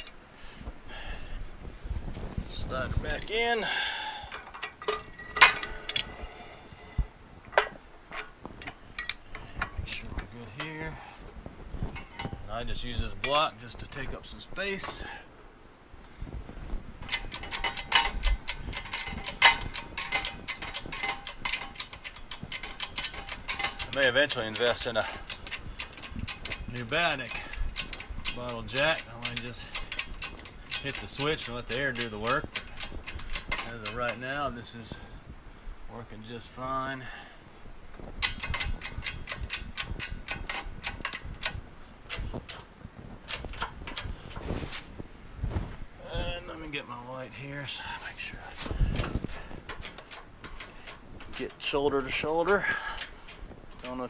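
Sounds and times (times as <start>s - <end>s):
hydraulic jack clicking: 17.0s - 34.3s, 38.2s - 42.7s, 48.6s - 54.0s.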